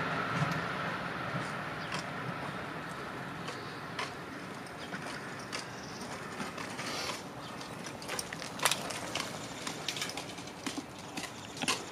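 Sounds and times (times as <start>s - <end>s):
bicycle clicking and rattling: 3.4s - 11.9s.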